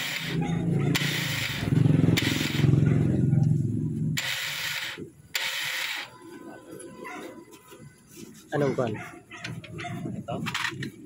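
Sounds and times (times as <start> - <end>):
scooter starter whirring: 0.0 - 6.2.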